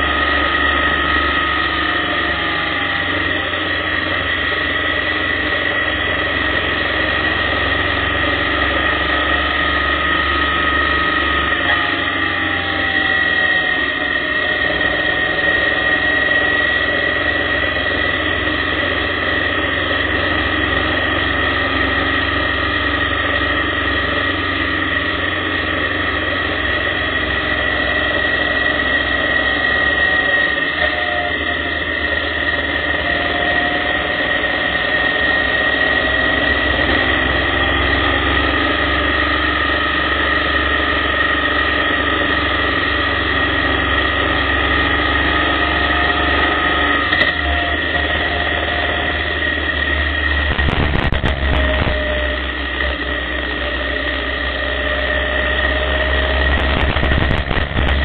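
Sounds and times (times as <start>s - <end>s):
motorcycle engine running: 0.0s - 58.0s
steady high whine: 0.0s - 58.0s
wind and road noise: 50.5s - 52.0s, 56.4s - 58.0s.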